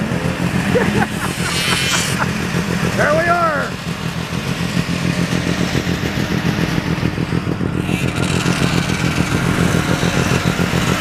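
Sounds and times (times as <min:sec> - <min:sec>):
snowmobile engine running: 0:00.0 - 0:11.0.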